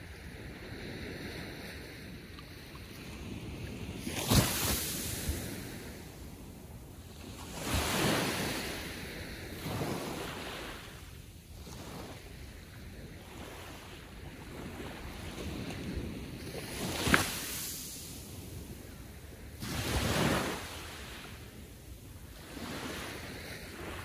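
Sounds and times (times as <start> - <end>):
waves washing onto beach: 0.0 - 24.0
sharp water splash: 4.1 - 5.2.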